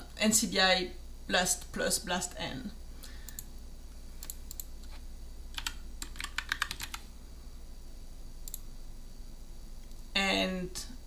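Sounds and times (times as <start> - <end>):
computer keyboard typing: 5.5 - 7.1.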